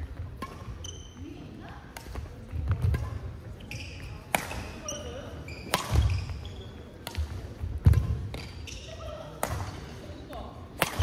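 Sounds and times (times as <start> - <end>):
racket hitting shuttlecock: 0.0 - 1.2, 1.8 - 10.0, 10.8 - 11.0
shoes squeaking on wooden floor: 3.5 - 7.0.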